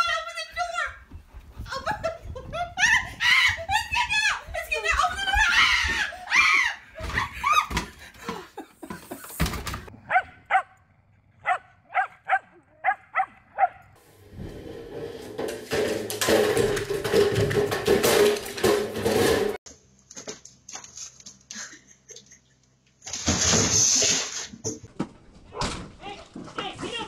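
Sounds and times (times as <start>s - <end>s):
dogs barking: 10.0s - 10.8s, 11.4s - 14.0s.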